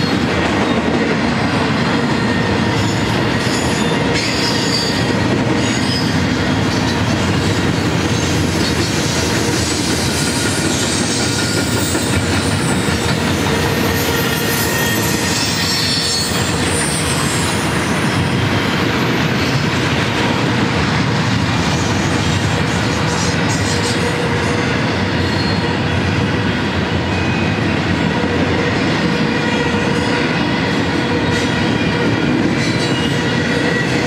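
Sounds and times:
steel wheels rumbling on rail: 0.0 - 34.0
high-pitched wheel squeal: 13.8 - 18.4.

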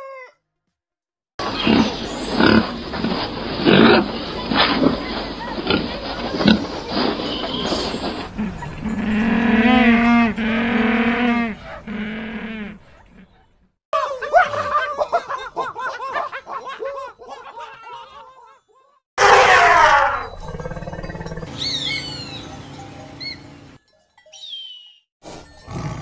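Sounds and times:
penguins braying: 1.4 - 13.2
primate chattering: 1.4 - 13.4
hawk screeching: 6.6 - 13.4.

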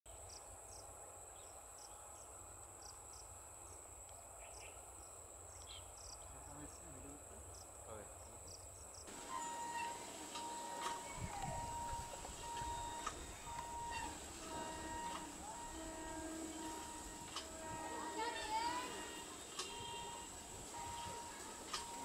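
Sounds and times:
short insect chirps: 8.4 - 22.0
high-pitched insect drone: 9.0 - 22.0
faint bird calls: 9.1 - 22.0.

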